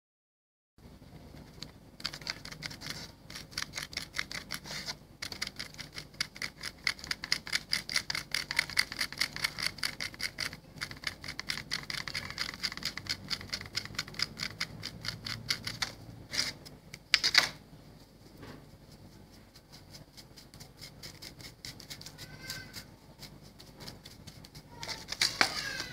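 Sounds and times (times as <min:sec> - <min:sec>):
hand tool scraping stone: 0:02.6 - 0:08.3.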